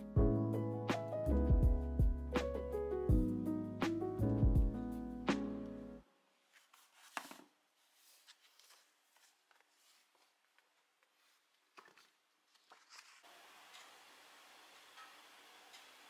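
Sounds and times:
faint clicks and rustles: 6.5 - 13.9.

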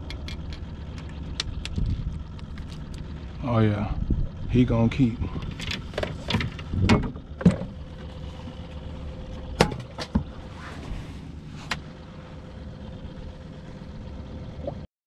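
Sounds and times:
boat motor humming: 0.0 - 14.9
faint whine: 0.0 - 14.9.

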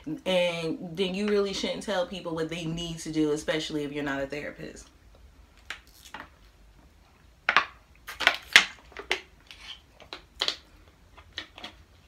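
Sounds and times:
plastic bottle crinkling: 5.6 - 6.6, 7.4 - 12.0.

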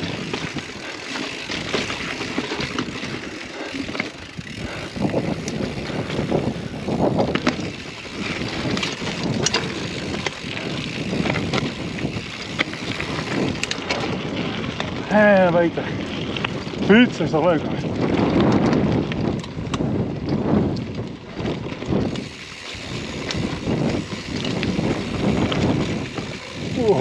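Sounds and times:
bike knocks and rattles: 0.0 - 27.0
tyre noise on dirt trail: 0.0 - 27.0
wind rushing over microphone: 0.0 - 27.0.

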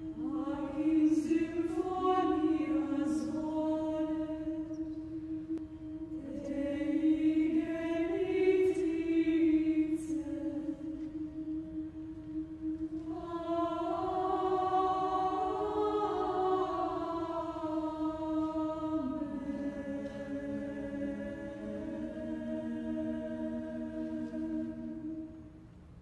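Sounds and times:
choir singing slow chant: 0.0 - 25.7.

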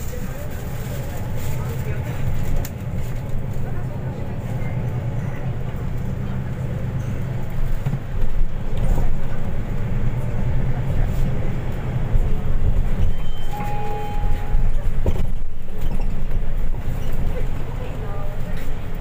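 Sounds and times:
bus engine rumble: 0.0 - 19.0
road noise: 0.0 - 19.0
short electronic beep: 13.0 - 14.8.

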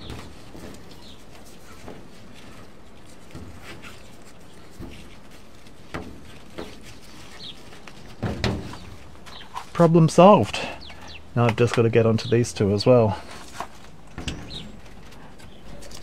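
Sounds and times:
plant leaves rustling: 0.0 - 16.0
faint bird chirp: 10.6 - 11.4, 14.1 - 16.0.

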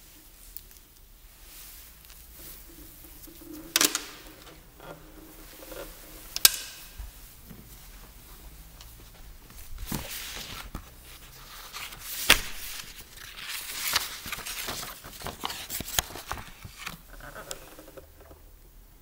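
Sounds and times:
stringed instrument handling noise: 2.0 - 7.8.

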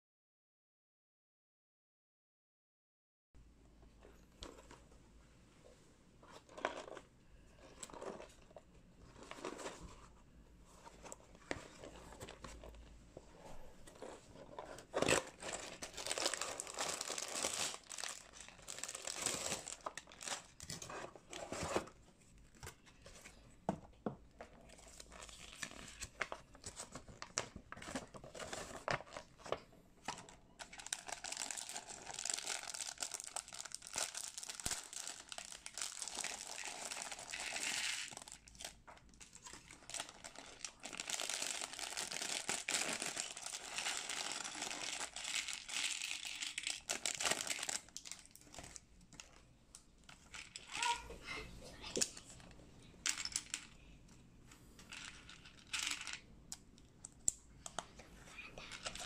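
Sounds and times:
plastic bags crinkling: 14.0 - 21.8, 30.1 - 49.4
bags tearing open: 14.9 - 20.7, 30.6 - 38.7, 39.4 - 48.4.

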